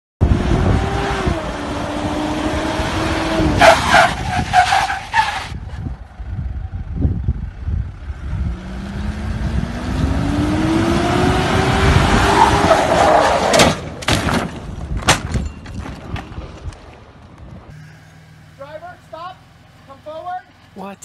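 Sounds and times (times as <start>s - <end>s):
car engine running hard: 5.6s - 12.8s.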